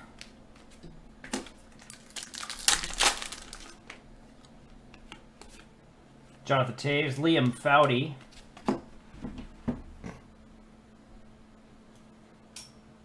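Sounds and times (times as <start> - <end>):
card pack wrapper crinkling: 1.4 - 4.0.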